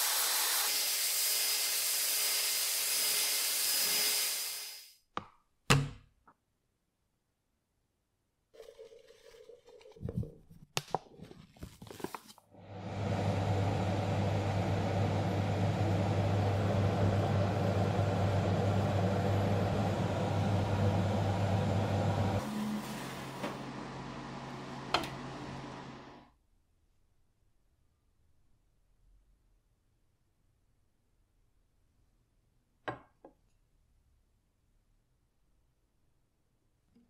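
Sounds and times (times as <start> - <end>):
deep motor hum: 12.6 - 26.2.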